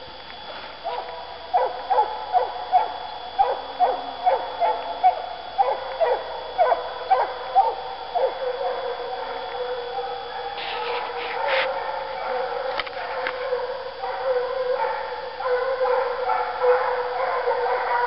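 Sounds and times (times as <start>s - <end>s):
hounds baying: 0.9s - 18.0s.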